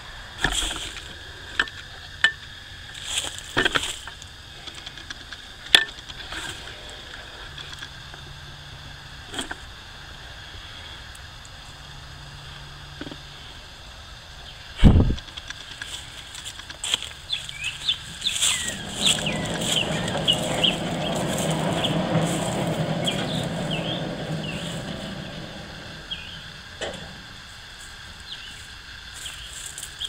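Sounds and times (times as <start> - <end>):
sawmill engine running: 16.8 - 28.6
small birds chirping: 17.2 - 26.7.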